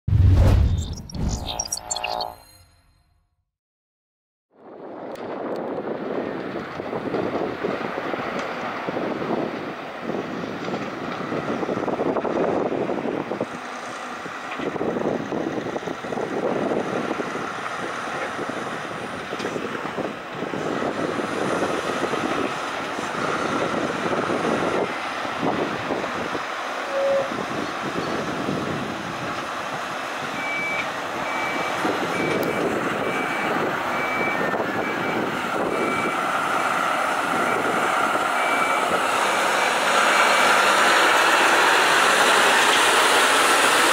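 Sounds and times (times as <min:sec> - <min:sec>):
reversing alarm beeping: 0:00.5 - 0:03.0, 0:30.4 - 0:36.2, 0:38.4 - 0:40.7
truck diesel engine running: 0:30.9 - 0:43.9.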